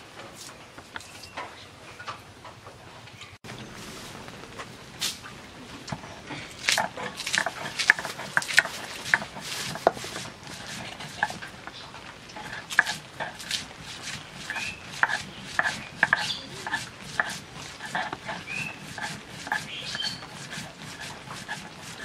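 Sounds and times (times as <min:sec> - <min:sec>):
stone grinding knocks and scrapes: 0:05.9 - 0:22.0.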